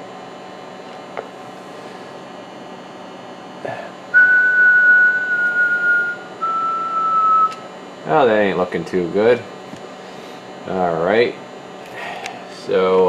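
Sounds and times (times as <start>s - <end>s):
low steady hum: 0.0s - 13.0s
person whistling into microphone: 4.2s - 7.6s.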